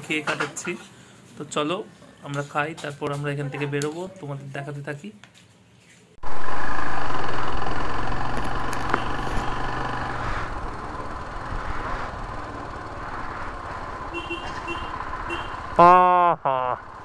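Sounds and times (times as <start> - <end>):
vehicle engine running: 6.2 - 17.0.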